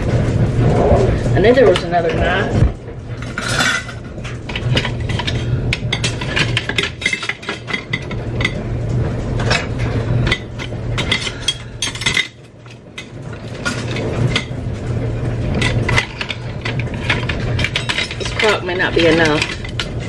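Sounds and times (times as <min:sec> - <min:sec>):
clothes dryer humming: 0:00.0 - 0:20.0
kitchen utensils clinking: 0:03.2 - 0:08.7, 0:09.3 - 0:14.6, 0:15.3 - 0:20.0.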